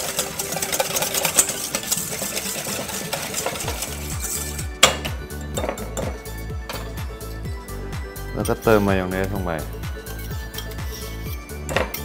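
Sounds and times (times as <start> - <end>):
whisk clinking in metal bowl: 0.0 - 7.0
background music: 0.0 - 12.0.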